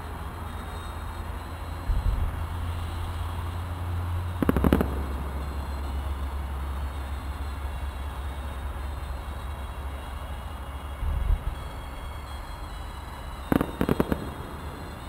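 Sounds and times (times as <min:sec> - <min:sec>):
steady low rumble: 0:00.0 - 0:12.0, 0:12.6 - 0:15.0
crackling firework bangs: 0:01.9 - 0:07.9, 0:13.3 - 0:15.0
distant firework thud: 0:04.4 - 0:06.4, 0:13.5 - 0:15.0.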